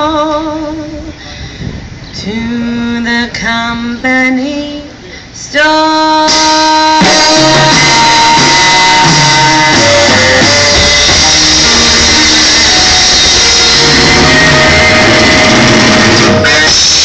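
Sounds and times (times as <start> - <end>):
woman singing: 2.2 - 11.1
swing band playing: 6.3 - 17.0.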